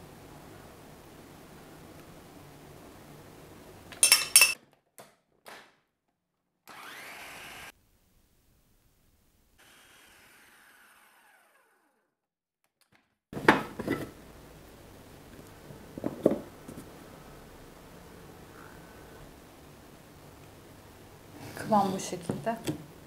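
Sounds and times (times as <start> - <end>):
food processor motor running: 6.7 - 7.7, 9.6 - 12.1.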